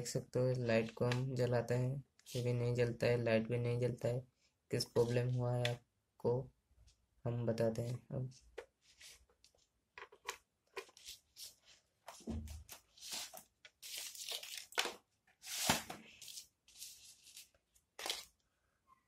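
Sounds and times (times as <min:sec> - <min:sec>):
plastic lantern being handled: 0:08.3 - 0:18.4.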